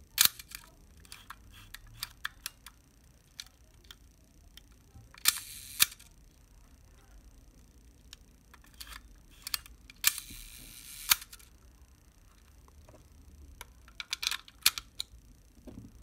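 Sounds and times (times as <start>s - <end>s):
shutter escapement whirring: 5.2s - 6.1s, 8.6s - 11.5s.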